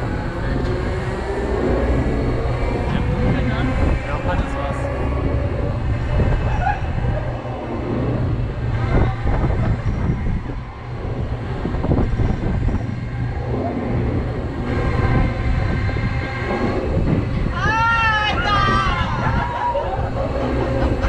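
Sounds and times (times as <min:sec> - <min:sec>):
fairground ride rumble: 0:00.0 - 0:21.0
rattles and clunks: 0:08.0 - 0:17.6.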